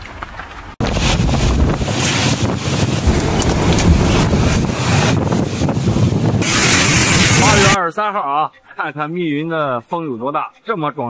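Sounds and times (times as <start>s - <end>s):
driving rain hiss: 0.8s - 7.8s
wind gusting on microphone: 0.8s - 7.8s.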